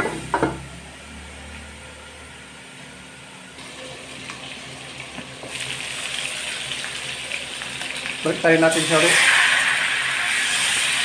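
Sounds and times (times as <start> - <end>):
meat sizzling in wok: 3.6 - 11.0.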